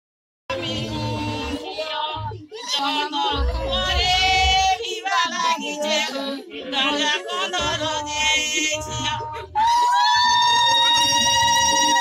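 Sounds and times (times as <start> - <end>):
women singing high drawn-out notes: 0.5 - 12.0
low rumble: 3.3 - 4.8.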